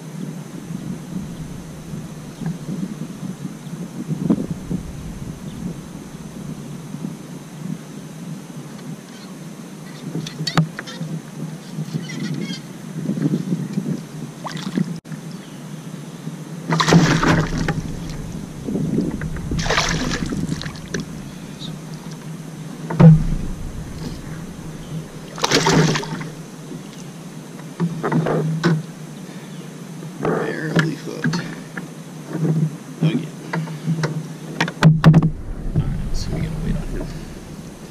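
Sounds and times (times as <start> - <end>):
steady low hum: 0.3 - 7.9, 17.0 - 27.4, 35.0 - 37.9
fish splashing at the surface: 16.7 - 22.4, 23.0 - 26.6
sharp knock: 22.9 - 26.4.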